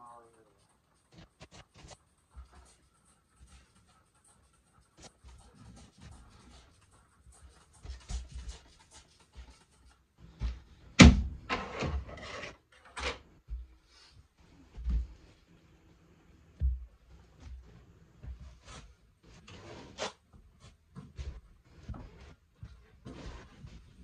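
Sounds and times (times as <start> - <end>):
rubbing on carpet: 0.6 - 10.4.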